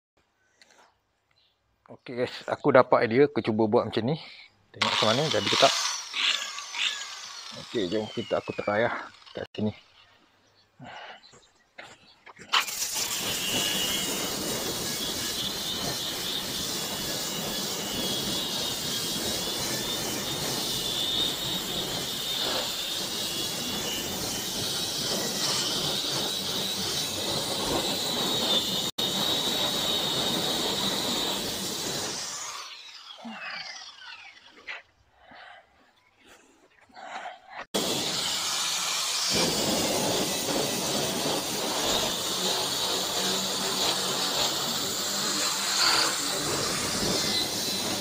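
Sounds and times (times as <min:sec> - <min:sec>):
electric polisher grinding paint: 0:04.8 - 0:10.0, 0:12.5 - 0:34.9, 0:37.7 - 0:48.0.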